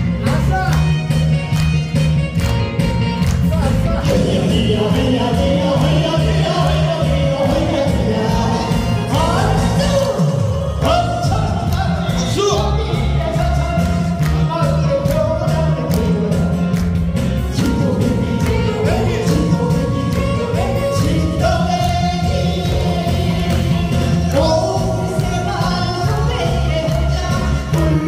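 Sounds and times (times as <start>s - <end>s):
backing track with bass beat: 0.0s - 28.0s
people singing through a pa: 4.1s - 11.4s, 17.6s - 28.0s.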